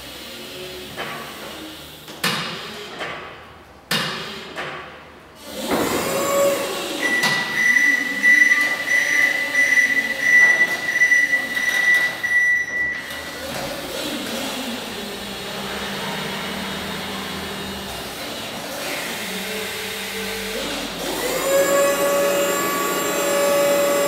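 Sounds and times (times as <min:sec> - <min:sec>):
reversing warning tone: 0:07.0 - 0:13.4
electric motor whine: 0:18.9 - 0:24.0.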